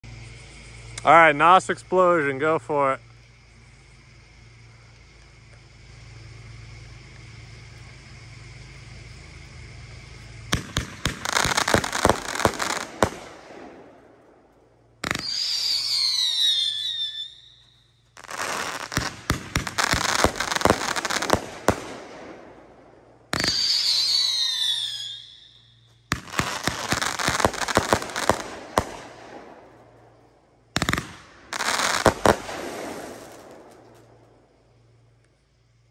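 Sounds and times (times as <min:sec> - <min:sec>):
firework bangs: 0:06.8 - 0:34.6
firework whistles falling in pitch: 0:10.5 - 0:13.9, 0:15.0 - 0:22.3, 0:23.3 - 0:29.5, 0:30.8 - 0:34.0.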